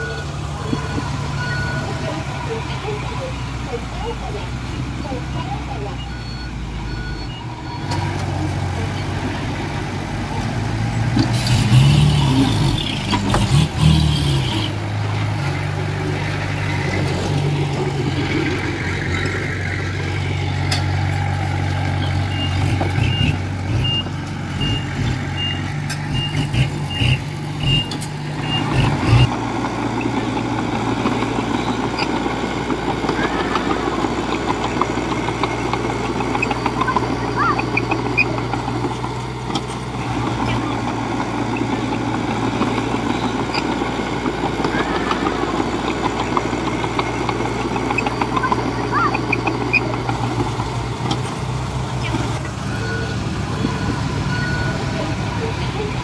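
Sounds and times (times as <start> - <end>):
reversing alarm beeping: 0.0 - 3.2, 5.1 - 8.2, 22.0 - 29.3, 52.4 - 55.5
heavy diesel engines running: 0.0 - 56.0.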